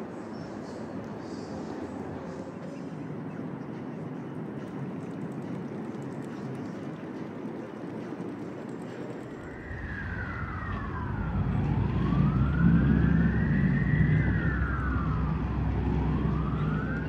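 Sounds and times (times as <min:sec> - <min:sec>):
low engine rumble: 0:03.9 - 0:17.0
emergency siren wailing: 0:09.4 - 0:17.0.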